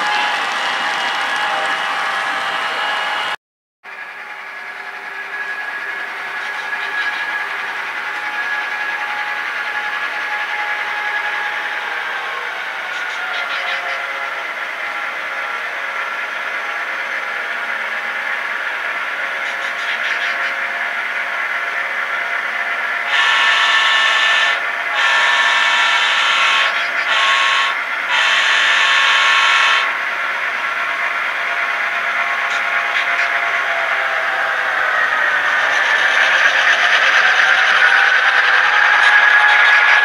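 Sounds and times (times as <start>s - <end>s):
train horn blasts: 0.0s - 3.4s, 23.0s - 30.1s
diesel locomotive engine droning: 0.0s - 40.0s.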